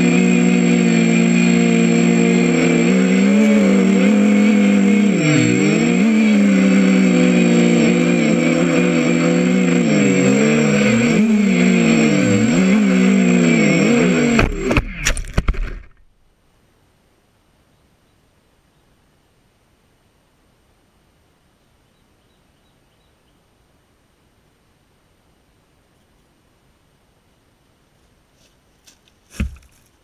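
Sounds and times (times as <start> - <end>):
drone hitting the ground: 0.0 - 16.0
drone motors whining: 0.0 - 16.0.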